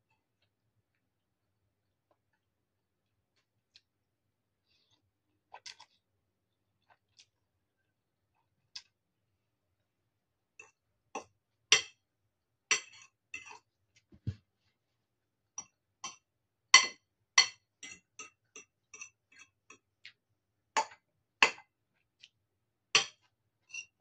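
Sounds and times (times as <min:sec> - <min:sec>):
fork clinking on ceramic bowl: 0:12.7 - 0:13.6.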